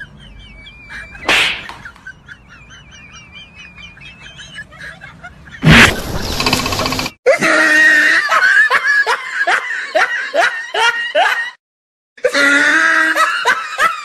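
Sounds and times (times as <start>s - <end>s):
high-pitched snickering laughter: 0.0s - 6.1s.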